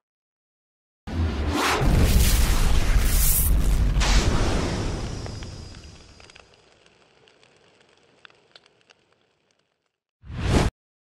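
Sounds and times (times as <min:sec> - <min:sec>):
fire crackling: 0:02.1 - 0:10.1.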